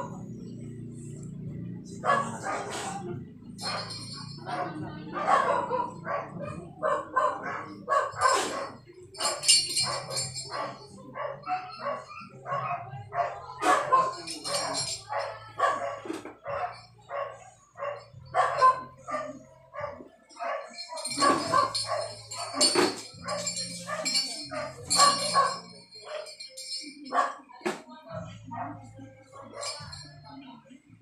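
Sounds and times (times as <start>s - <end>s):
dog barking: 1.8s - 27.6s, 28.3s - 30.2s.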